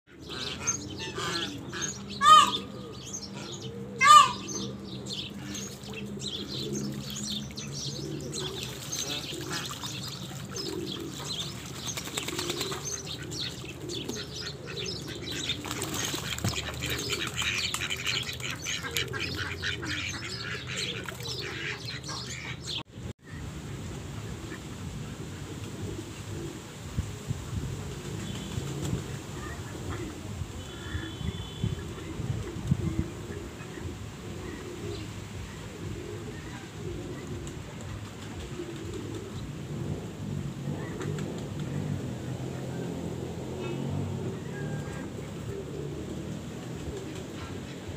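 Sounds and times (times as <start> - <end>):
ducks calling softly: 0.1 - 4.7, 12.3 - 22.8
birds chirping and twittering: 0.1 - 22.9, 28.2 - 39.5.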